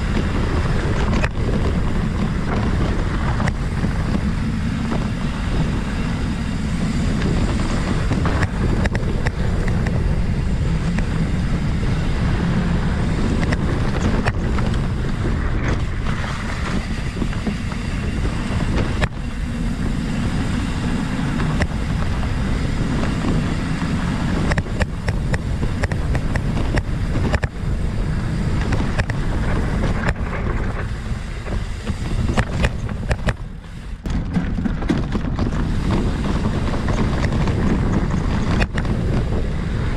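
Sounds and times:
bike knocks and rattles: 0:00.0 - 0:39.9
bike tyres rumbling on dirt: 0:00.0 - 0:39.9
wind on microphone: 0:00.0 - 0:39.9.

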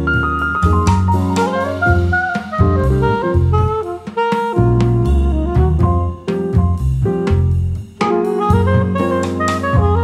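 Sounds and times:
saxophone: 0:00.0 - 0:06.5, 0:08.0 - 0:10.0
drums: 0:00.0 - 0:10.0
piano: 0:00.0 - 0:10.0.

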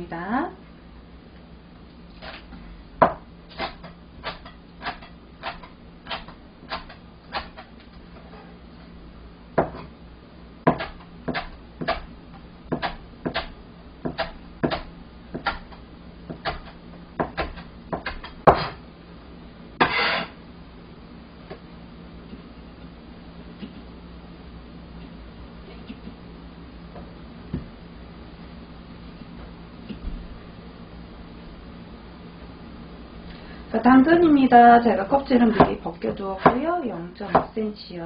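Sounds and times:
cleaver chopping green onion: 0:03.0 - 0:07.7, 0:10.7 - 0:12.1, 0:12.7 - 0:18.8
rough scraping sound: 0:19.8 - 0:20.4.

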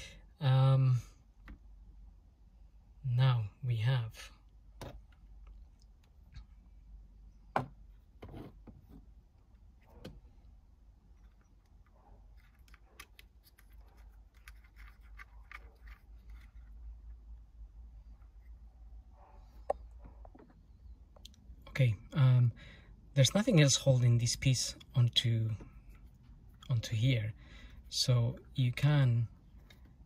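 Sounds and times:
plastic parts clicking and knocking: 0:11.2 - 0:16.8.

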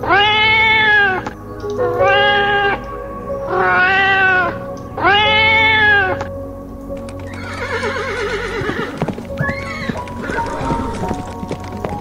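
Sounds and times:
cat meowing: 0:00.0 - 0:01.2
background music: 0:00.0 - 0:12.0.

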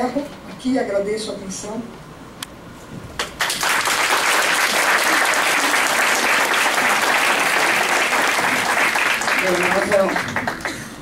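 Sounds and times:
people applauding: 0:03.2 - 0:11.0.

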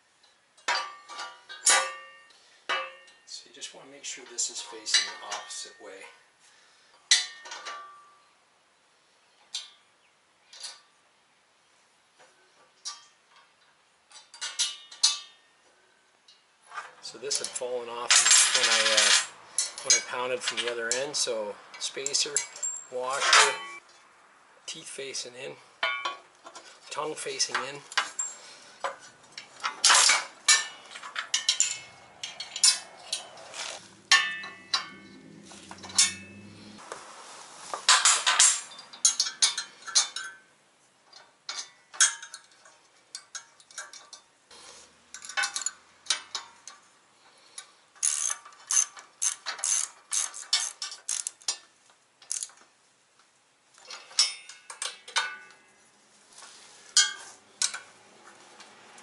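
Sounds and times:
wrenches clinking on metal: 0:00.6 - 0:03.3, 0:04.3 - 0:05.9, 0:12.8 - 0:15.4, 0:16.3 - 0:23.8, 0:25.8 - 0:36.8, 0:37.9 - 0:40.5, 0:41.1 - 0:44.3, 0:45.1 - 0:52.7, 0:53.8 - 0:55.7, 0:56.9 - 0:58.0
ratchet wrench clicking: 0:48.0 - 0:51.6, 0:52.2 - 0:52.5.

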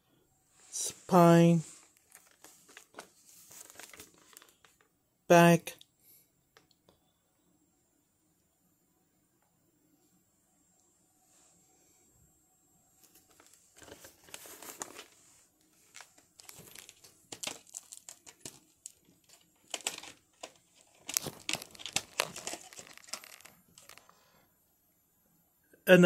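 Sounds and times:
plastic case crinkling and clicking: 0:01.8 - 0:04.9, 0:13.0 - 0:24.1.

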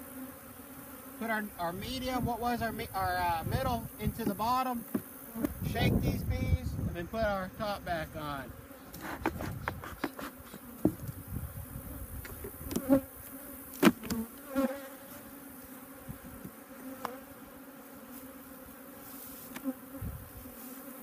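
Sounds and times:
honeybees buzzing: 0:00.0 - 0:21.0
wooden hive boxes knocking: 0:04.0 - 0:05.6, 0:09.1 - 0:11.1.

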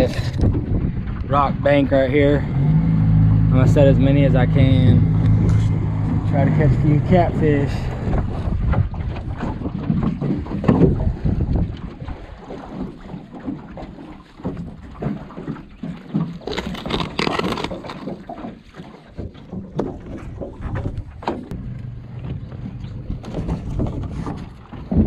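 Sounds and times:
wind on microphone: 0:00.0 - 0:13.1, 0:22.4 - 0:25.0
knocks of gear in a boat: 0:08.0 - 0:25.0.

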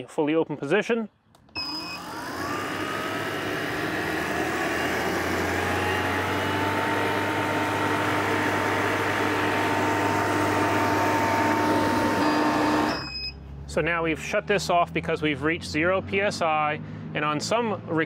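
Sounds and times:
recovery machine compressor whirring: 0:01.6 - 0:13.3.

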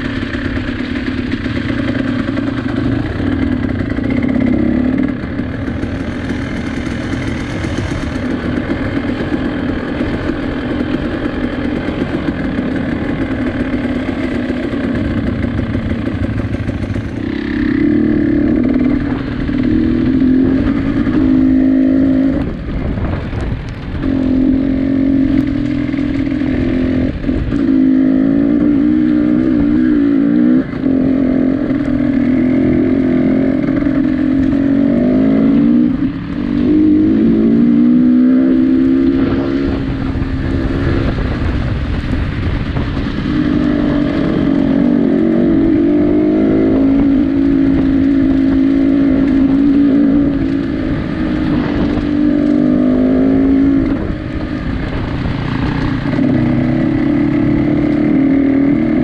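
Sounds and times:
engine revving high: 0:24.0 - 0:41.7.

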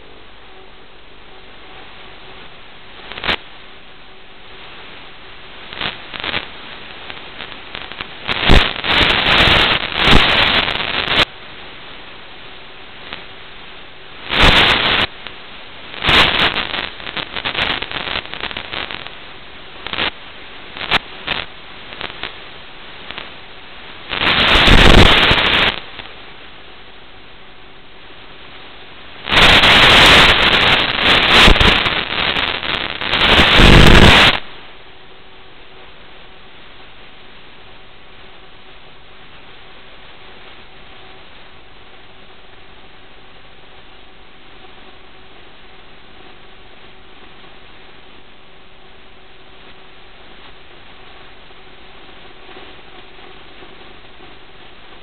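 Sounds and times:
crackling static: 0:00.0 - 0:55.0
steady hiss: 0:00.0 - 0:55.0.

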